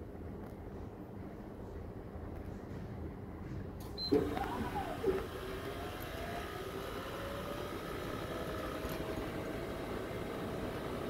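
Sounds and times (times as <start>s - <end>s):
motors whirring whine: 3.8s - 11.0s.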